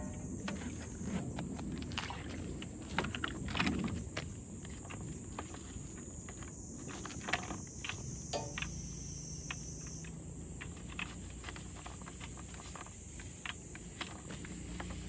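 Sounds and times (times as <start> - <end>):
high-pitched insect drone: 7.8 - 11.2.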